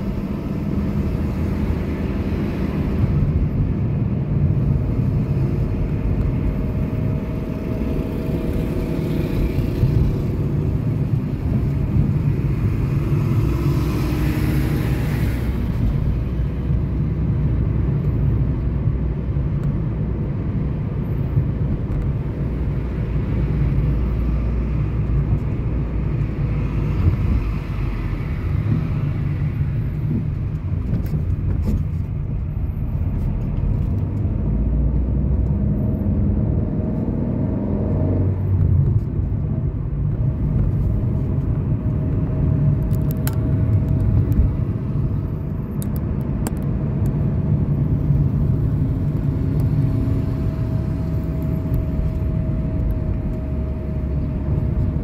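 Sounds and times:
car road and engine rumble: 0.0s - 55.0s.

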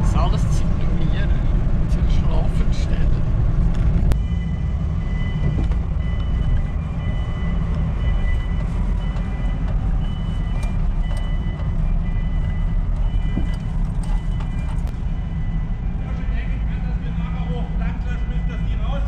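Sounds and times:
bus engine rumble: 0.0s - 19.0s.

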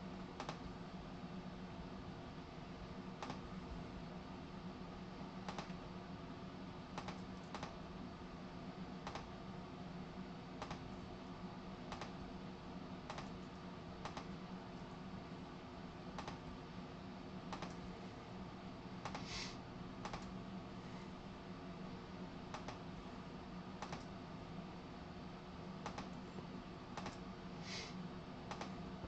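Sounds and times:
steady low hum and hiss: 0.0s - 29.0s
sharp clicks: 7.0s - 7.8s, 11.9s - 12.2s, 13.1s - 13.4s, 16.2s - 16.4s, 20.0s - 20.3s, 23.8s - 24.1s, 25.8s - 26.2s, 27.0s - 27.2s, 28.5s - 28.7s
short hiss: 19.2s - 19.6s, 27.6s - 28.0s.

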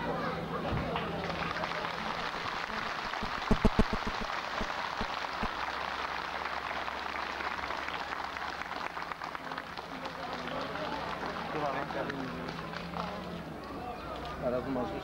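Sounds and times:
crowd applauding: 0.9s - 15.0s
loud close claps: 2.1s - 5.8s.

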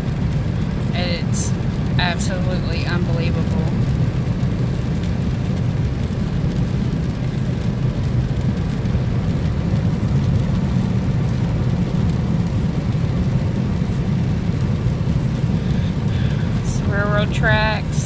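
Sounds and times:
car engine cruising: 0.0s - 18.0s
tyres on wet road: 0.0s - 18.0s.

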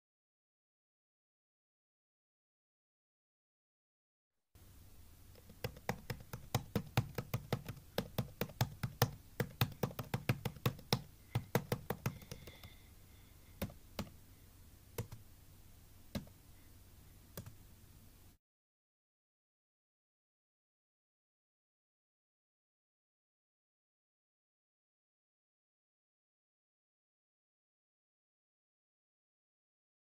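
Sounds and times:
faint low hum: 4.6s - 18.4s
taps on touchscreen: 5.4s - 12.8s.

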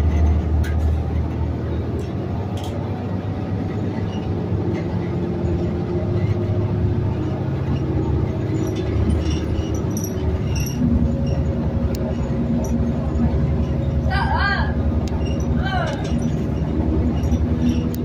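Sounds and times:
bus engine low rumble: 0.0s - 18.0s
faint transmission whine: 0.0s - 18.0s.

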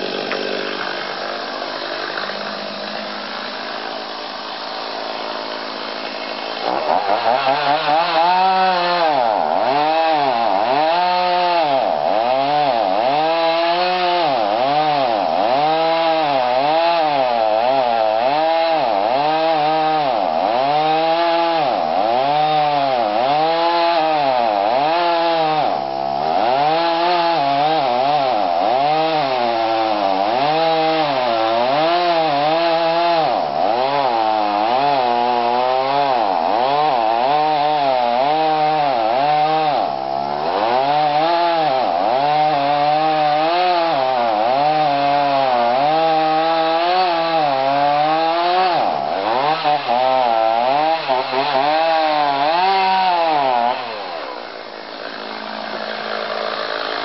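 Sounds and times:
chainsaw cutting wood: 0.0s - 57.0s.

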